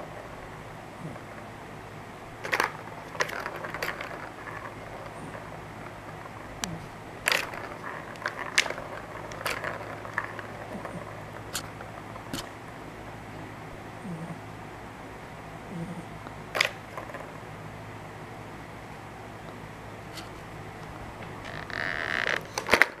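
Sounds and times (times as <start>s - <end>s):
balls rattling and rolling: 2.3s - 12.9s, 16.4s - 17.6s, 20.0s - 23.0s
cat pawing plastic toy clicks: 2.4s - 4.7s, 7.3s - 10.5s, 16.6s - 17.3s.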